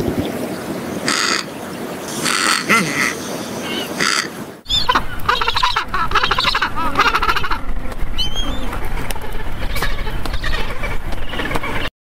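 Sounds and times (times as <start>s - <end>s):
flock of birds calling: 0.0s - 11.9s.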